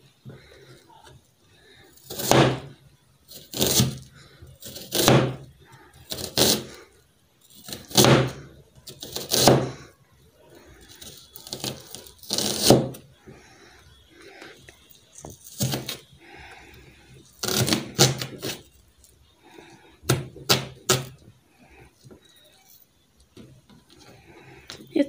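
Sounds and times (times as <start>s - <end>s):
knife slicing onion on plastic board: 2.0s - 2.7s, 3.3s - 5.5s, 6.1s - 6.7s, 7.6s - 9.8s, 10.9s - 13.1s, 15.4s - 16.0s, 17.4s - 18.7s, 20.1s - 21.2s.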